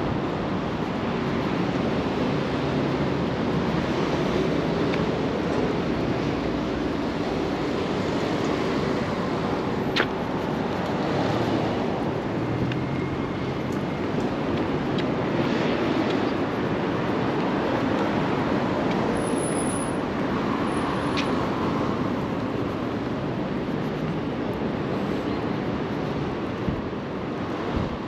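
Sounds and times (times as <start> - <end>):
passing road traffic: 0.0 - 28.0
sharp click: 9.9 - 10.2.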